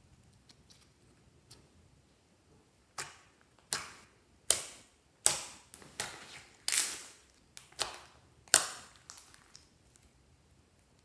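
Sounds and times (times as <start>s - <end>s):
slime popping: 3.0s - 9.7s.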